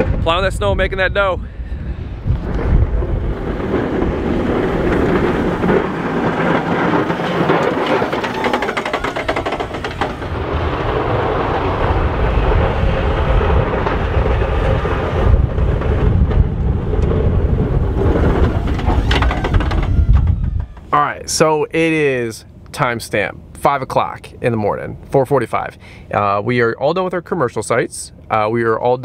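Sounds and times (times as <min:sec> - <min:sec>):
wind rumble on microphone: 0:00.0 - 0:22.6
truck engine running: 0:02.1 - 0:21.4
plow blade scraping snow: 0:02.4 - 0:20.0.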